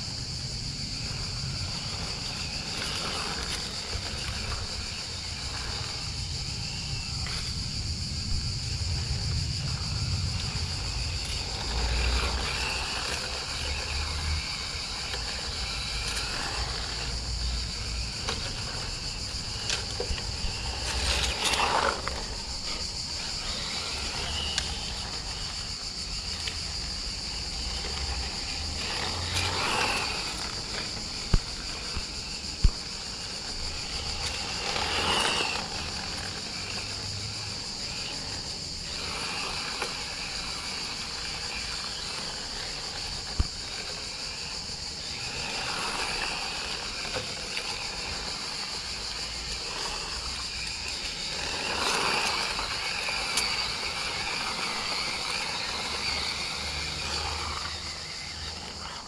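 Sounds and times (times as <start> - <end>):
electric toy car motor whine: 0.0 - 59.0
insect chorus: 0.0 - 59.0.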